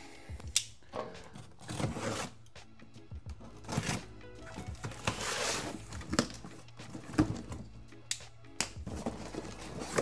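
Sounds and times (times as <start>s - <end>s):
cardboard box scraping on floor: 1.6s - 2.4s, 4.8s - 6.0s, 8.9s - 10.0s.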